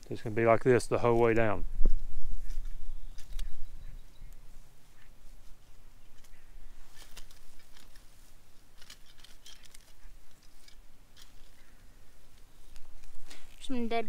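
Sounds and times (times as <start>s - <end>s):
hand rake scraping wood chips: 6.2s - 11.6s.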